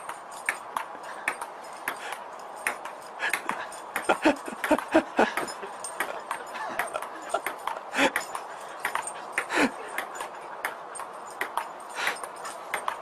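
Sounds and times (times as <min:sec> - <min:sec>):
table tennis ball hits: 0:02.6 - 0:10.8, 0:11.4 - 0:11.6.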